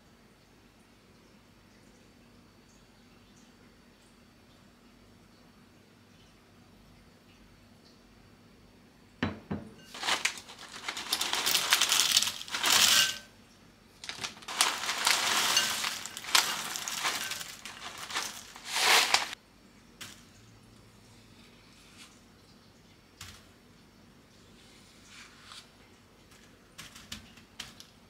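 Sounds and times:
popcorn rustling and crackling: 0:09.9 - 0:13.3, 0:13.9 - 0:19.4, 0:26.2 - 0:28.0
snacks pouring into glass bowl: 0:09.9 - 0:13.3, 0:14.0 - 0:19.4.

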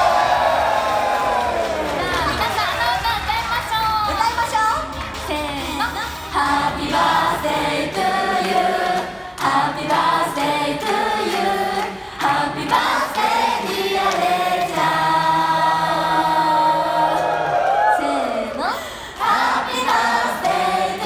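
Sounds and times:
women singing in unison: 0:05.3 - 0:21.0.

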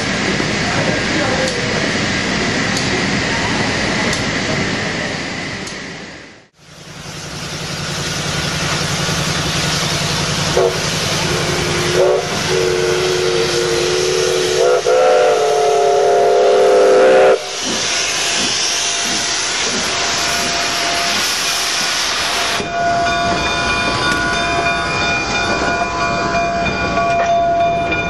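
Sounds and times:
steam hissing: 0:00.0 - 0:27.6
chime steam whistle blasts: 0:10.5 - 0:28.0.

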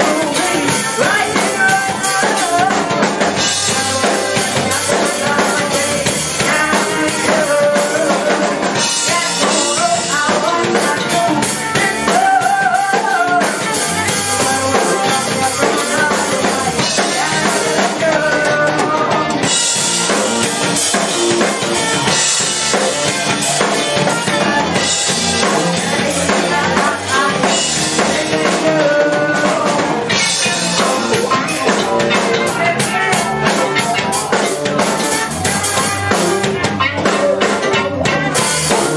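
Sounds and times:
trumpet: 0:00.0 - 0:18.1, 0:30.2 - 0:38.9
bass guitar: 0:00.0 - 0:38.9
drum kit: 0:00.0 - 0:38.9
electric guitar: 0:00.0 - 0:38.9
person singing into microphone: 0:00.0 - 0:38.9.

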